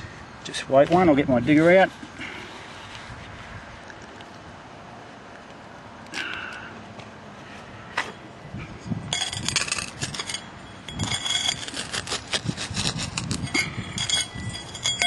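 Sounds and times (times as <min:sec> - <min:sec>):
short clinks: 0:08.8 - 0:12.1, 0:13.3 - 0:15.0
hand digger scraping soil: 0:08.8 - 0:15.0.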